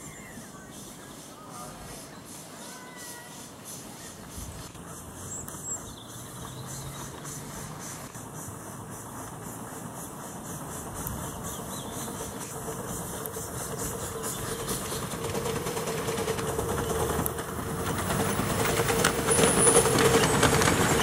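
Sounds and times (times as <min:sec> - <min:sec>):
steam locomotive hissing: 0:00.0 - 0:21.0.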